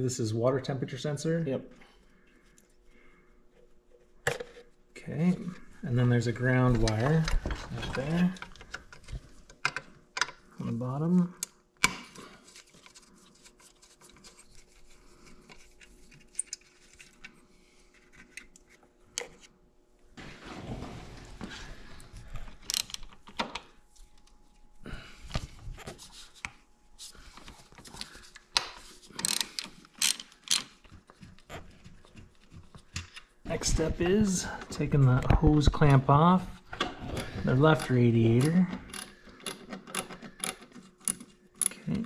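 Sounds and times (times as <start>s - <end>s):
socket ratchet clicking: 29.2s - 30.7s.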